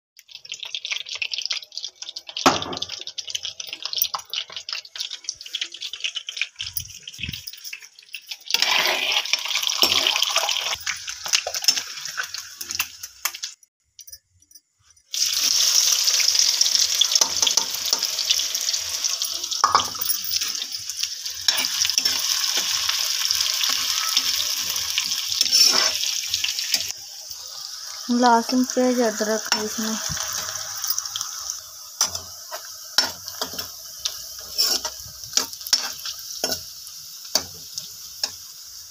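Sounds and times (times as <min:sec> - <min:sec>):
food sizzling in hot oil: 0:00.2 - 0:14.0, 0:14.6 - 0:38.9
ladle scraping wok: 0:24.4 - 0:26.9, 0:29.6 - 0:36.7.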